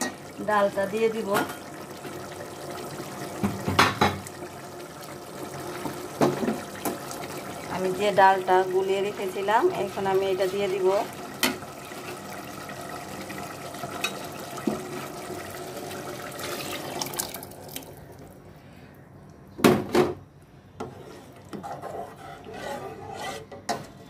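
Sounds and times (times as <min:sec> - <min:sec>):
water pouring into a pot: 0:00.0 - 0:18.3.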